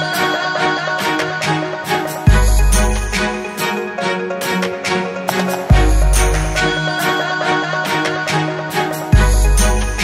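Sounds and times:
electronic music with steady beat: 2.3 - 7.1.

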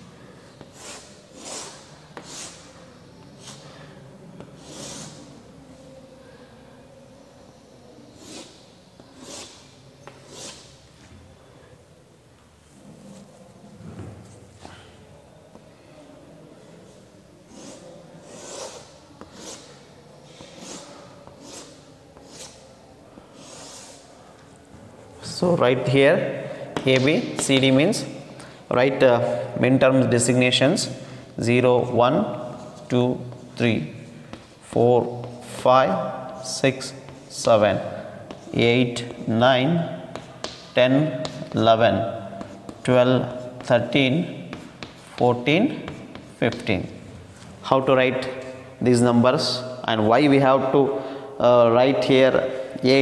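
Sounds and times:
chalk scraping on chalkboard: 0.6 - 3.7, 4.5 - 5.3, 8.1 - 10.8, 17.4 - 22.6, 23.2 - 24.1, 42.3 - 46.7
chalk tapping on board: 40.1 - 41.6, 42.3 - 43.9, 44.5 - 46.7.

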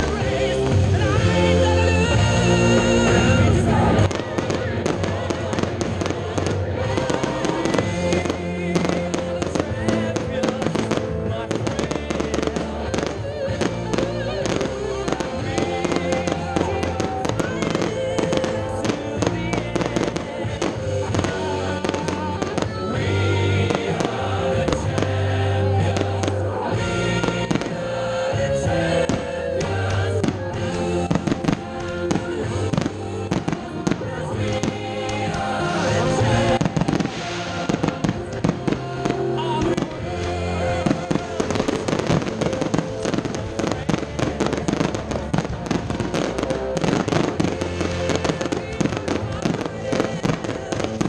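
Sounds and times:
fireworks bursting: 0.0 - 51.0
music playing: 0.0 - 51.0.

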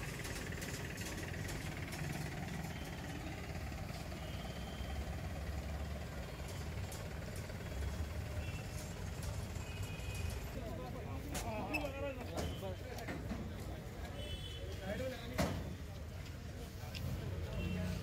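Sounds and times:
truck engine running at low revs: 0.0 - 11.0.

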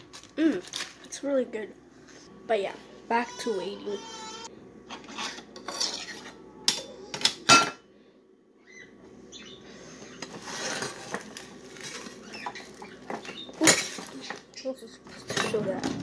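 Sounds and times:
cutlery clinking and clattering: 5.0 - 7.8, 13.1 - 14.4.

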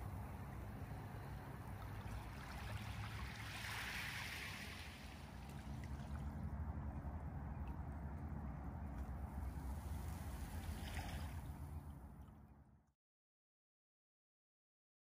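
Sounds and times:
waves washing over pebble beach: 2.7 - 5.2.

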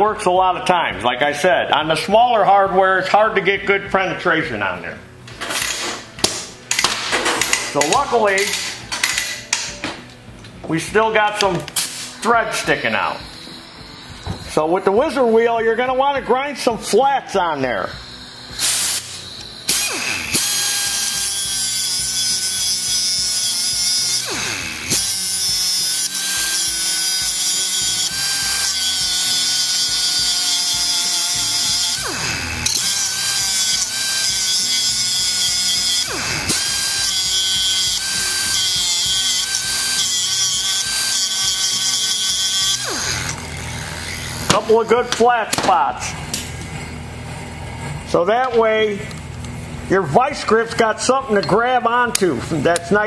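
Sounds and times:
die grinder whining: 10.9 - 49.9.

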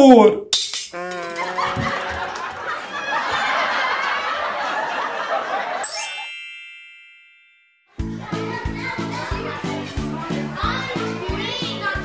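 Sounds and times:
canned audience laughter: 1.1 - 5.9
bright rising chime: 5.9 - 8.0.

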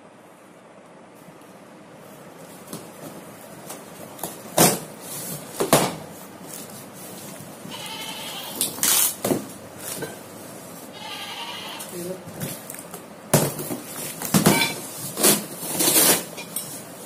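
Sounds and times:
packing tape and cardboard tearing: 2.6 - 7.8, 8.5 - 10.0, 11.8 - 16.4.

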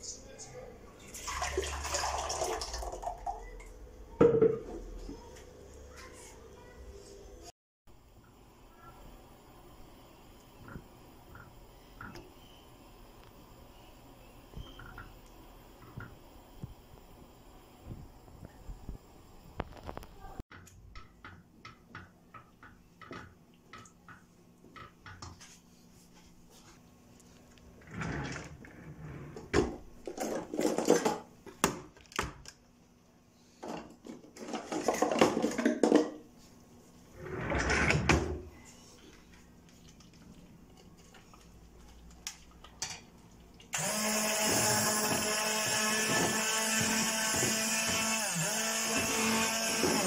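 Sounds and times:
immersion blender whirring: 43.7 - 50.0.

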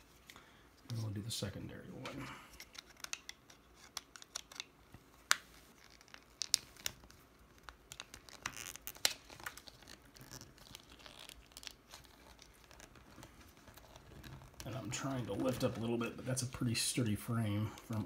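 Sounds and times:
plastic lens and frame clicking: 2.6 - 14.7.

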